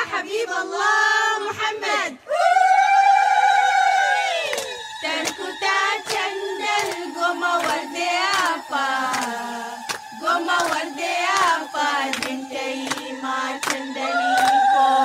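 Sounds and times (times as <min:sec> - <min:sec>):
women singing together: 0:00.0 - 0:15.0
hand claps: 0:06.1 - 0:14.8.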